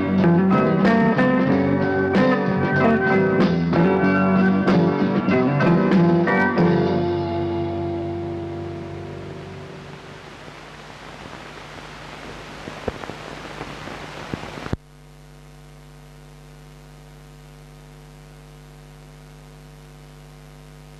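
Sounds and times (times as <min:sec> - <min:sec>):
film soundtrack hiss and crackle: 0:00.0 - 0:20.9
electrical mains hum: 0:05.6 - 0:20.9.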